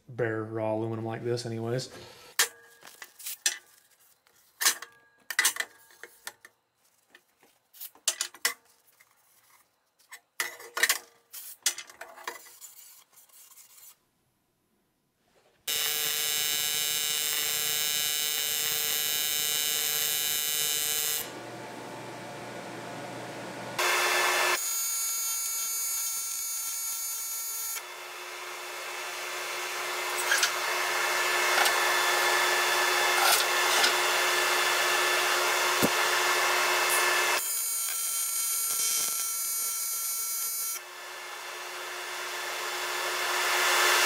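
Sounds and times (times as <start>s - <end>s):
welding arc buzzing: 15.7s - 21.5s, 23.1s - 44.0s.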